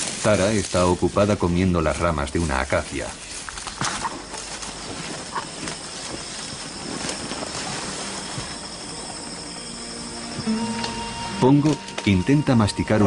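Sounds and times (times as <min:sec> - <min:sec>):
twigs cracking: 0:00.0 - 0:11.0
leaves rustling: 0:00.0 - 0:13.0
steady high thin tone: 0:04.0 - 0:13.0.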